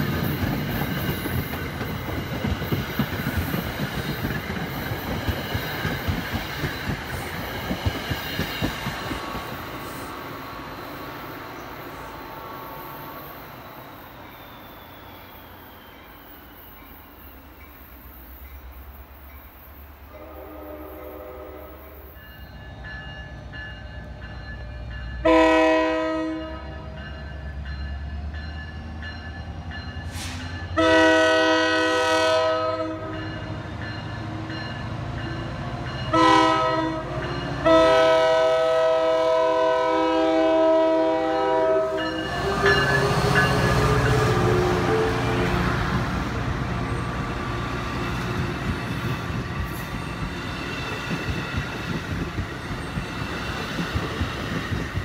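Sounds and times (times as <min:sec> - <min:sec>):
train wheels on rails: 0:00.0 - 0:55.0
locomotive horn blasts: 0:20.1 - 0:22.0, 0:25.2 - 0:26.9, 0:30.2 - 0:33.2, 0:36.1 - 0:45.8.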